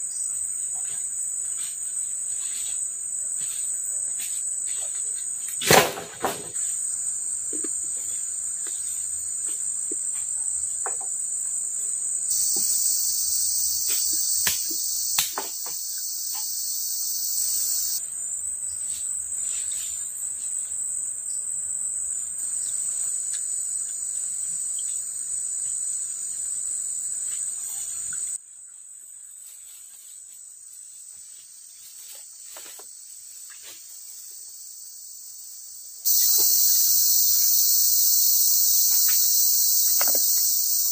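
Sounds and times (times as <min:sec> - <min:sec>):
insects droning high-pitched: 0:00.0 - 0:40.9
lower-pitched insects calling: 0:06.5 - 0:28.4, 0:31.0 - 0:40.9.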